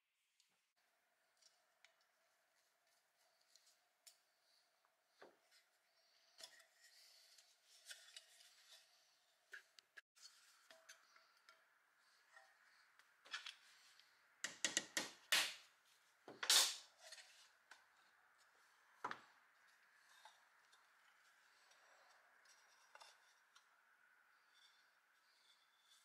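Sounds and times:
metallic clatters and scrapes: 0:05.4 - 0:12.7, 0:16.4 - 0:18.9.

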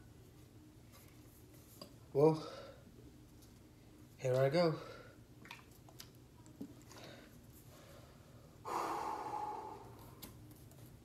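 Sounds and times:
man blowing out breath: 0:08.7 - 0:10.0.

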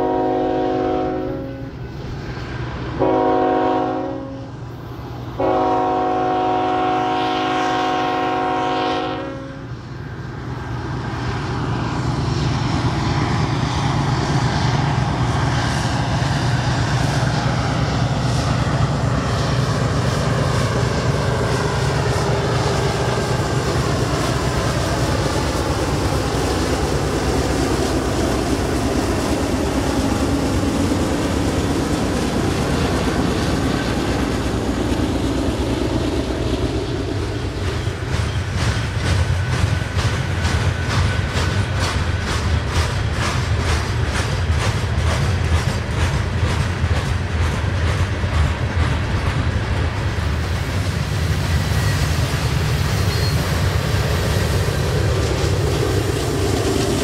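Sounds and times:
locomotive air horn blasts: 0:00.0 - 0:01.8, 0:03.0 - 0:04.5, 0:05.4 - 0:09.7
diesel locomotives passing: 0:00.0 - 0:57.0
train wheels rumbling on rail: 0:00.0 - 0:57.0.

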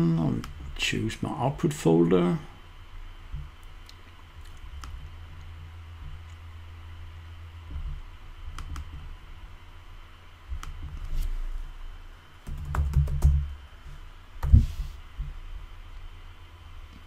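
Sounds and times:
keyboard typing: 0:12.4 - 0:13.5.

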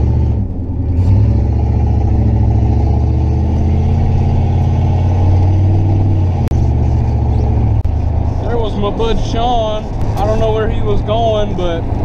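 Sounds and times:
car engine running: 0:00.0 - 0:12.0.

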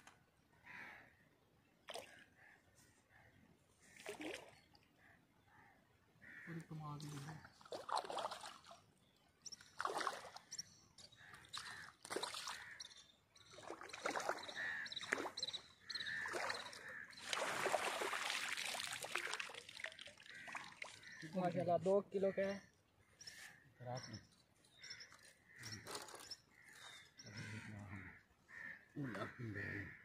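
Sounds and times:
water splashing and sloshing: 0:01.8 - 0:02.4, 0:03.7 - 0:05.0, 0:06.9 - 0:21.6.

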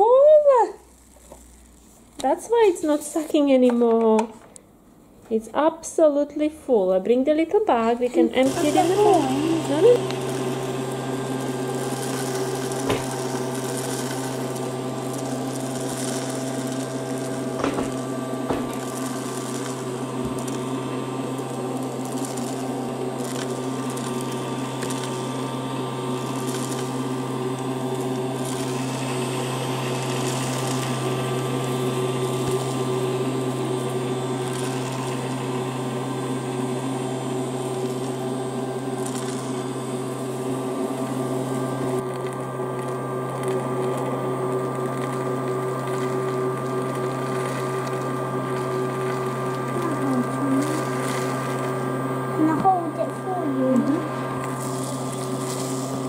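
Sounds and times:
toy vacuum motor humming: 0:08.3 - 0:37.0, 0:42.8 - 0:56.0.

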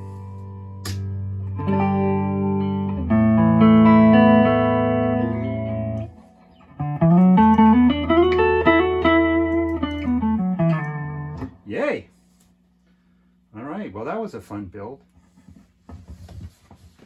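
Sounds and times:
electric guitar chords: 0:00.0 - 0:11.7
electric guitar single notes: 0:00.0 - 0:11.7.

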